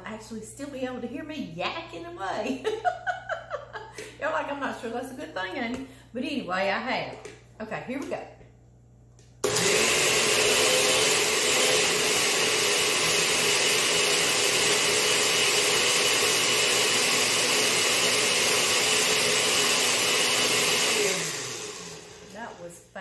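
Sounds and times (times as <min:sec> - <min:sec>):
blender running: 0:09.4 - 0:22.8.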